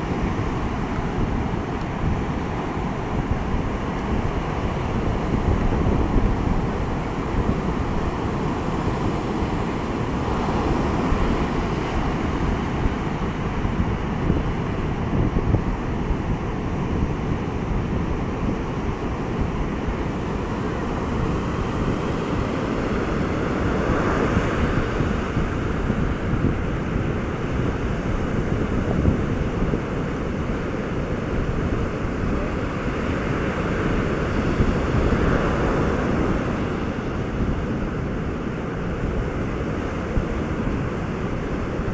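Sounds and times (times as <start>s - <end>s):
surf breaking on beach: 0.0s - 41.9s
wind buffeting microphone: 0.0s - 41.9s.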